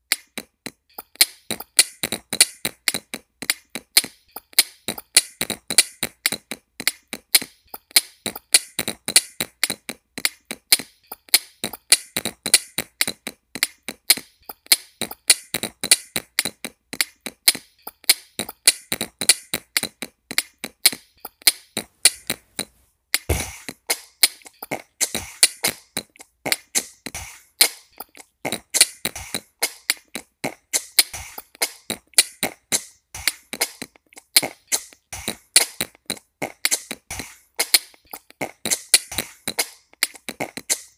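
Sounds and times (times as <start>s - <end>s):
vocal beatboxing: 4.8s - 10.9s, 23.3s - 40.9s.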